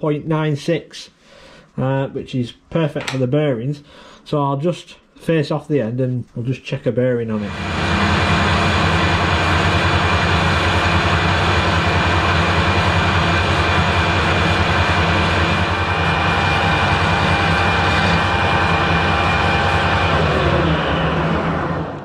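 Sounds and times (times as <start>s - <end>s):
lathe running with low throb: 7.4s - 22.0s.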